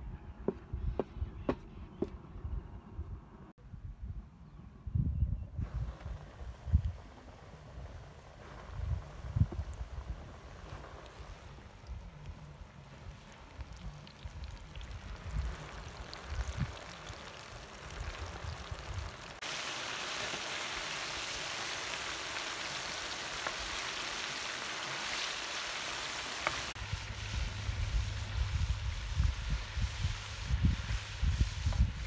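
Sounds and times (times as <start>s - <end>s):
wind buffeting microphone: 0.0s - 19.4s, 26.8s - 32.0s
food deep-frying in hot oil: 5.7s - 32.0s.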